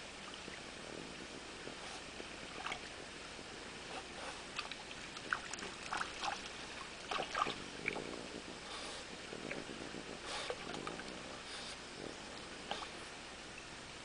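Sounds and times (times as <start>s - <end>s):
stream trickling: 0.0s - 14.0s
dog splashing in water: 4.6s - 8.0s.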